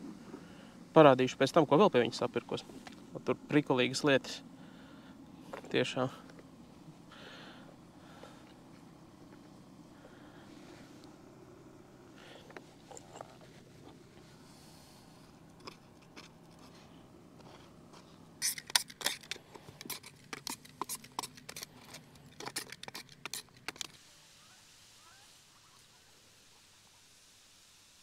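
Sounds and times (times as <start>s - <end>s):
faint steady hiss: 0.0s - 18.7s, 23.3s - 28.0s
spatula scraping plastic cup: 18.4s - 23.9s.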